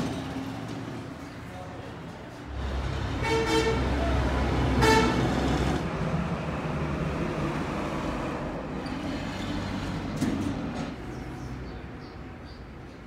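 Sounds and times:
engine rumble: 0.0s - 13.0s
vehicle horn toot: 3.2s - 4.0s, 4.8s - 5.3s.

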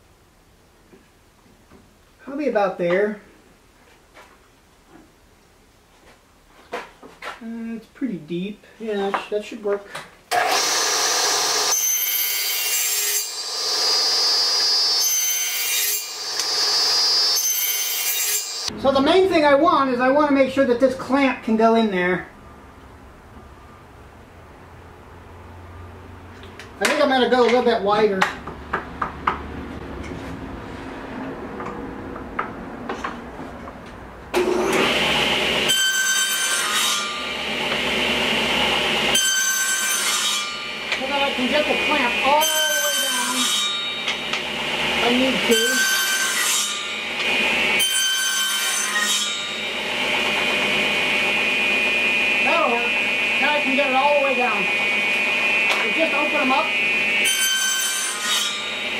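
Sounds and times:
table saw cutting wood: 10.3s - 18.8s, 34.4s - 58.9s.

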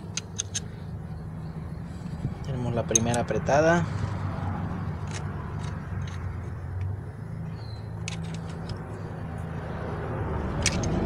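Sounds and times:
metallic tool clicks: 0.0s - 0.7s, 5.0s - 6.9s, 8.0s - 8.9s, 10.5s - 11.0s
low mechanical hum: 0.0s - 11.0s.

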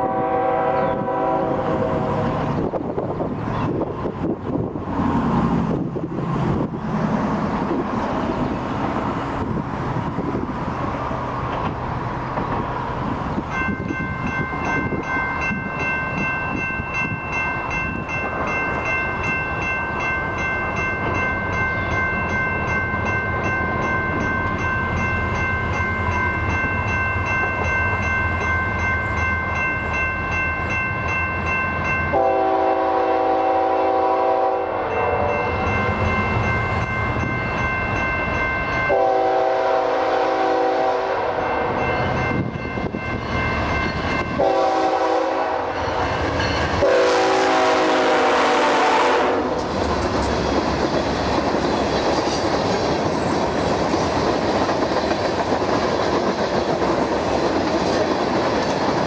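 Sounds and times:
locomotive air horn: 0.0s - 2.3s, 32.1s - 35.7s, 38.9s - 41.8s, 44.4s - 45.8s, 46.8s - 49.6s
crossing warning bell ringing: 13.3s - 50.4s.

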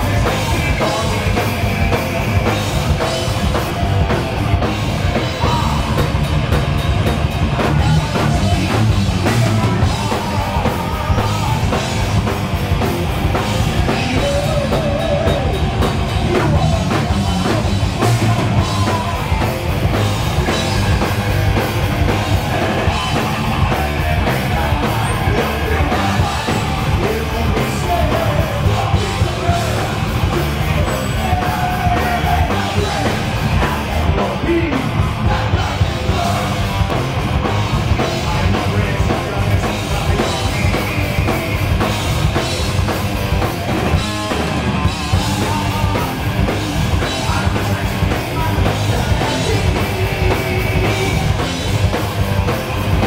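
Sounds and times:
person singing: 0.0s - 4.1s, 7.5s - 12.3s, 13.5s - 19.7s, 22.0s - 37.0s, 37.9s - 42.4s, 44.1s - 51.6s
bass guitar: 0.0s - 53.0s
distorted electric guitars: 0.0s - 53.0s
pounding drum kit: 0.0s - 53.0s.

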